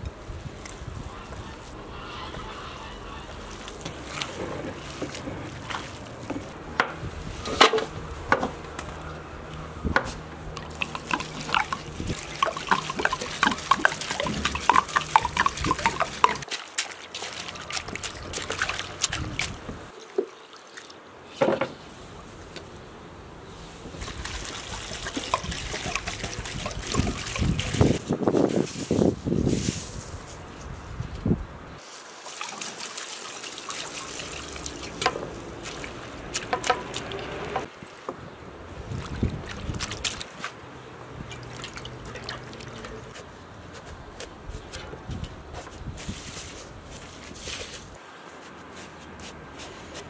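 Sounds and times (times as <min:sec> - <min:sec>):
water pouring and splashing: 0:03.3 - 0:09.1, 0:10.2 - 0:21.1, 0:23.7 - 0:30.2, 0:31.8 - 0:43.2.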